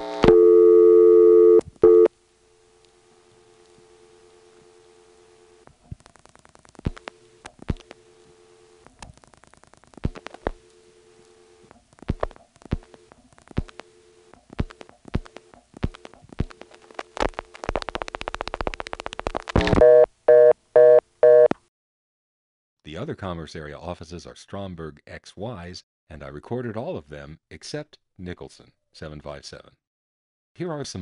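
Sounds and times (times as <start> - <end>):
two-tone dial tone: 0.0 - 2.1, 19.6 - 21.6
busy signal tone: 0.3 - 2.1, 19.8 - 21.5.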